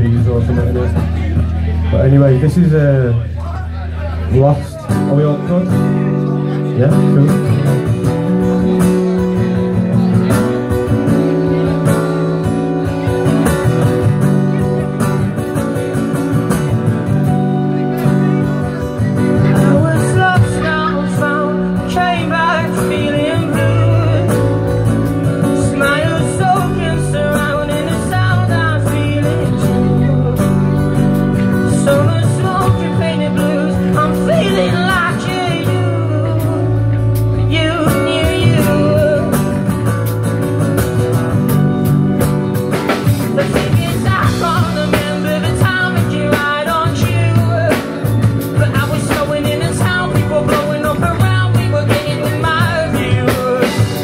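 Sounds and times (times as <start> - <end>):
live band playing: 0.0 - 54.0
person singing: 17.2 - 40.6, 42.8 - 54.0.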